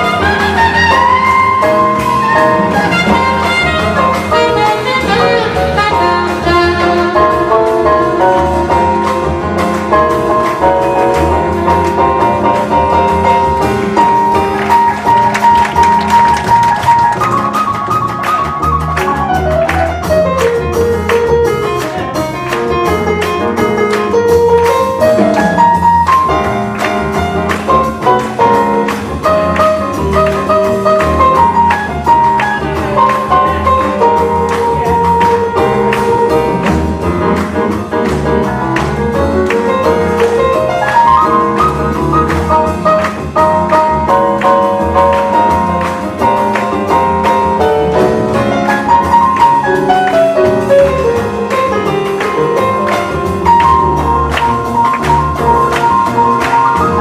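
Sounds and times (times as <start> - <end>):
saxophone solo: 0.0 - 7.8
drum kit with busy cymbals: 0.0 - 57.0
piano: 0.0 - 57.0
upright bass: 0.0 - 57.0.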